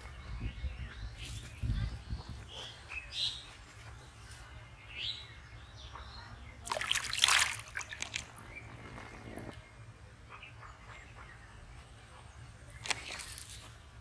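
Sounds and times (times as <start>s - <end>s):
small birds chirping: 0.0s - 14.0s
fish splashing in tub: 6.6s - 9.5s, 12.8s - 13.7s.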